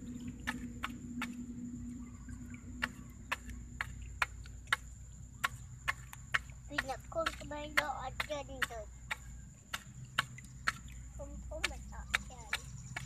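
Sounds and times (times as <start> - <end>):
high insect whine: 0.0 - 13.0
stick clicking against stakes: 2.8 - 10.9.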